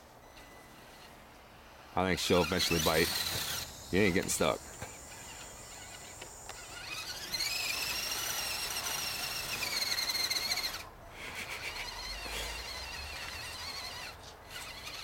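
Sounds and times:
toy car motor whining: 0.2s - 15.0s
tyres spinning through snow: 1.8s - 15.0s.

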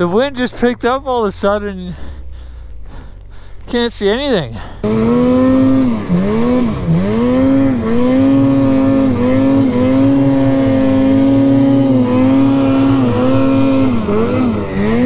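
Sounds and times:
snowmobile engine revving: 0.0s - 15.0s.

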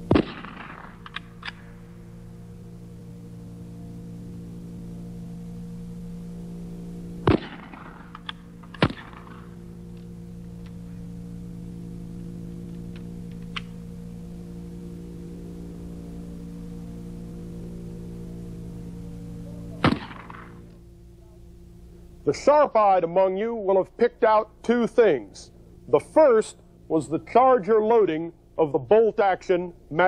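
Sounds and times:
low electrical hum: 0.0s - 30.0s
rifle shots: 0.1s - 1.7s, 7.2s - 9.5s, 19.8s - 20.5s.

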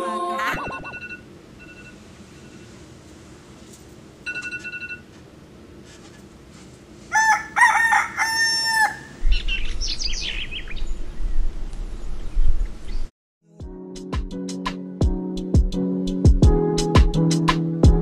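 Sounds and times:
short electronic beep: 0.5s - 2.6s
rooster crowing: 7.1s - 9.2s
small birds chirping: 9.2s - 13.1s.

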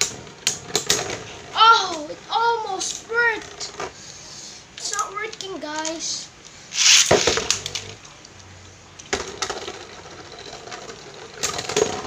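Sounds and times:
spinning tops scraping clatter: 5.9s - 8.0s
spinning tops clicking and knocking: 6.7s - 8.0s.

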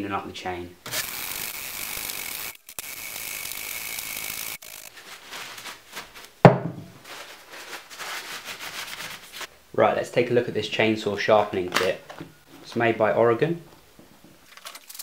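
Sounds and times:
rag rubbing chain: 0.9s - 5.0s
wire brush scrubbing chain: 0.9s - 5.0s
loud knock: 6.4s - 6.9s.

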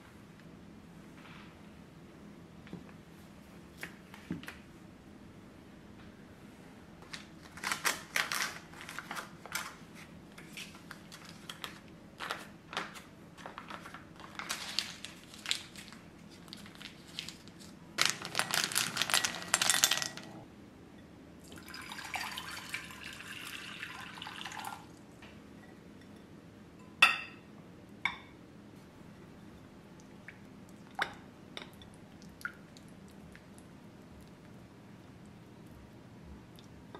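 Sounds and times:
foil wrapper crinkling: 7.0s - 20.3s
water pouring: 21.4s - 25.0s.

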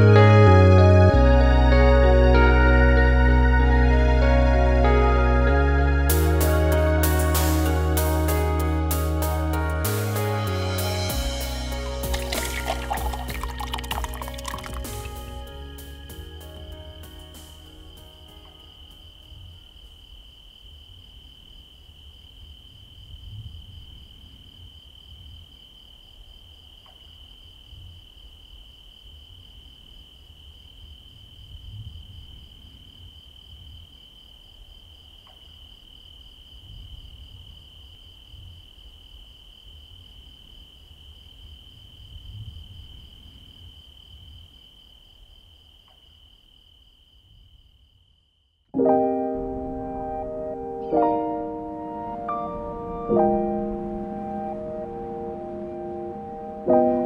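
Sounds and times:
insects trilling: 11.4s - 48.7s.

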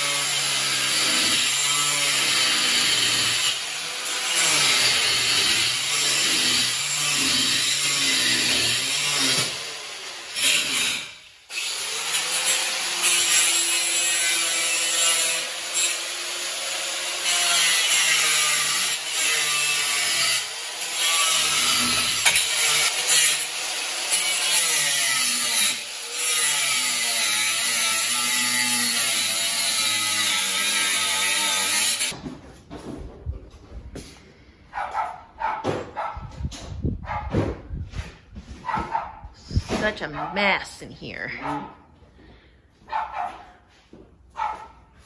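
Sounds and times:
angle grinder cutting metal: 0.0s - 32.2s.

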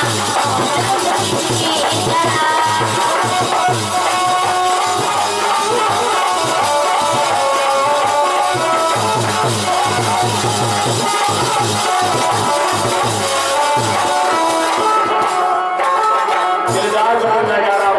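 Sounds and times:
woman singing: 0.0s - 6.7s
harmonium melody: 0.0s - 17.9s
rhythmic percussion: 0.0s - 17.9s.

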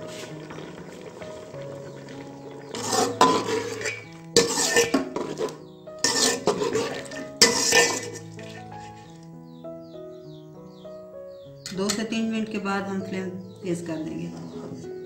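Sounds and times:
metal skimmer scraping pot: 0.0s - 9.1s.

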